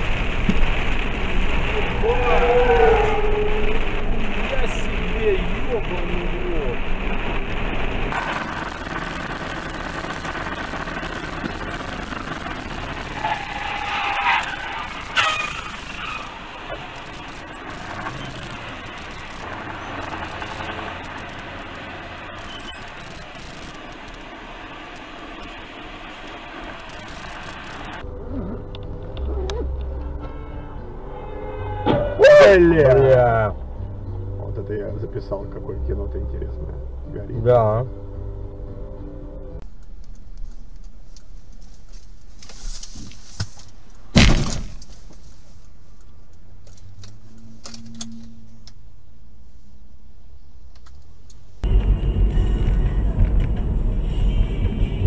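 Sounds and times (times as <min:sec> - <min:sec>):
low engine hum: 0:00.0 - 0:13.3, 0:16.8 - 0:42.4, 0:45.8 - 0:55.0
road and wind noise in vehicle: 0:00.0 - 0:55.0
wavering pitched tone: 0:28.0 - 0:34.6, 0:47.2 - 0:48.7.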